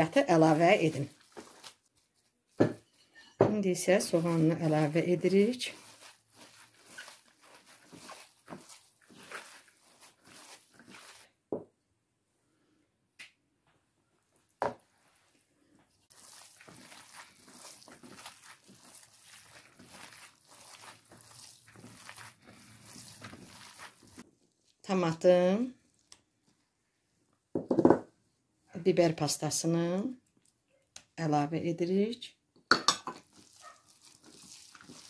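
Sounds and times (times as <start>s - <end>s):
gloved hands kneading wet grains: 0.0s - 3.0s, 3.6s - 11.5s, 14.4s - 26.7s, 33.2s - 35.0s.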